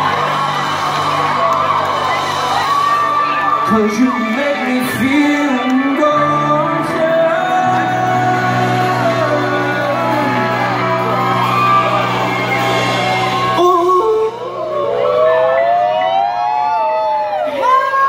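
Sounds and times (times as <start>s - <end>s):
sustained keyboard chords: 0.0s - 16.2s
held bass: 0.0s - 16.4s
crowd shouts and whoops: 0.0s - 18.0s
person singing: 3.2s - 16.3s.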